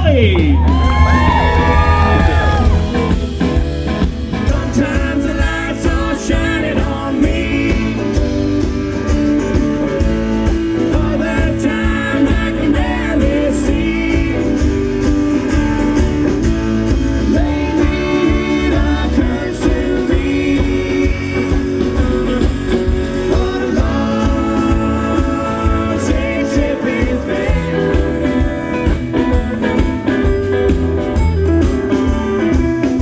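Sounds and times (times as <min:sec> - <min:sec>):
live band playing: 0:00.0 - 0:33.0
person singing: 0:10.7 - 0:14.9, 0:17.2 - 0:28.8.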